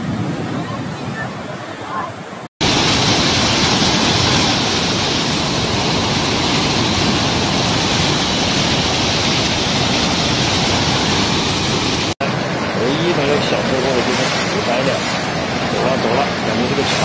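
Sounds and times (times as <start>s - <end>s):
water rushing through spillway: 0.5s - 17.0s.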